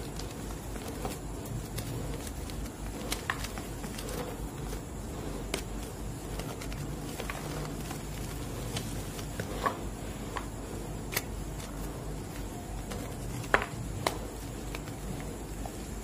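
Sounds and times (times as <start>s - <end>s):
chalk pieces snapping: 0.0s - 4.8s, 5.4s - 15.7s.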